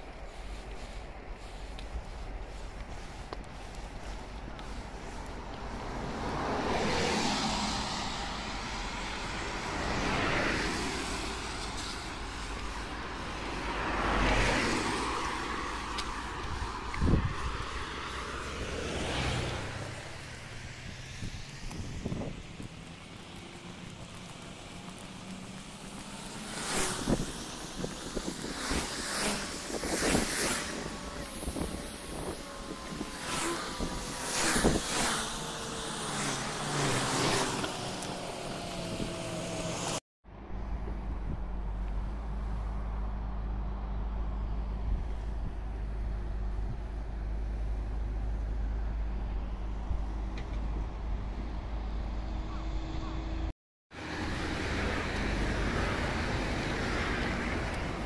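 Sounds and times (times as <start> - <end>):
wind buffeting microphone: 14.4 - 22.9, 26.5 - 39.9
low outdoor rumble: 37.8 - 58.0.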